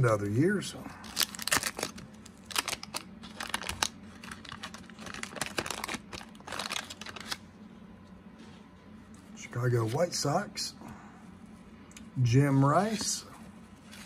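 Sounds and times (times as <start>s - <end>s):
paper crinkling: 1.0s - 7.4s, 12.8s - 14.0s.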